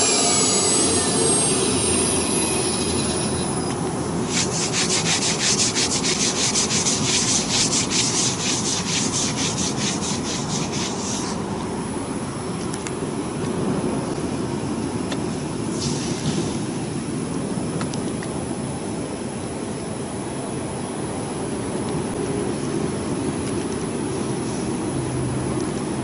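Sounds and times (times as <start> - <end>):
pulsing rasping sound: 0.0 - 3.7, 4.3 - 11.3.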